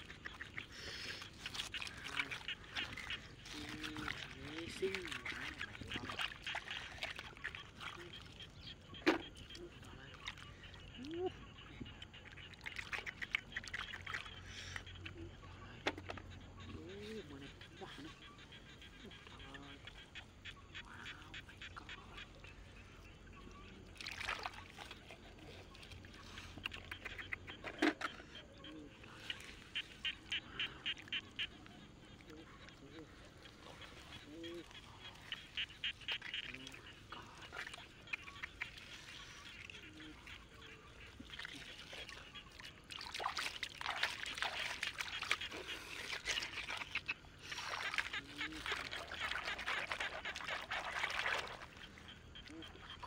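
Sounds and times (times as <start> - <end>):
wet mud squelching: 0.0 - 11.2, 23.9 - 53.0
water trickling: 0.0 - 14.3
small water splashes: 0.0 - 53.0.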